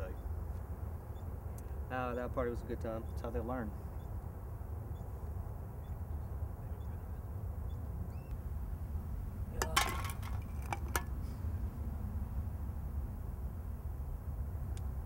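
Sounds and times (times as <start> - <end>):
clinks and rattles: 9.6 - 11.1.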